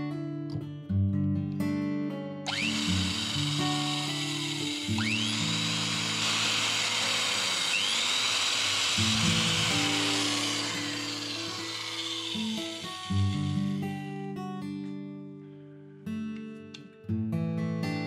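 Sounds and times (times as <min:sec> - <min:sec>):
acoustic guitar music: 0:00.0 - 0:05.6, 0:12.4 - 0:18.0
electric drill boring into steel: 0:02.5 - 0:13.9.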